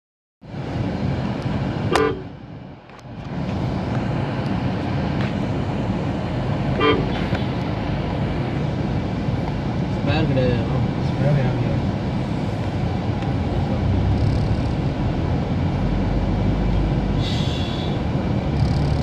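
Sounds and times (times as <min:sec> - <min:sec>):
car engine and road rumble: 0:00.4 - 0:19.0
vehicle horn toots: 0:01.9 - 0:02.3, 0:06.8 - 0:07.2.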